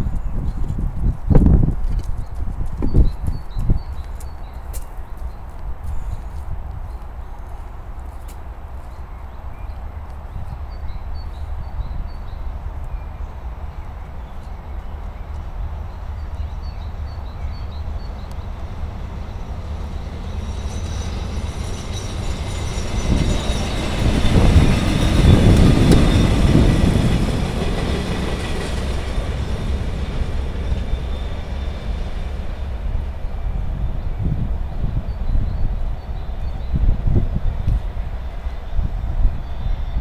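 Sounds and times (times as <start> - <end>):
rail work vehicle passing: 3.3 - 40.0
high-pitched ringing from rails: 17.0 - 33.8.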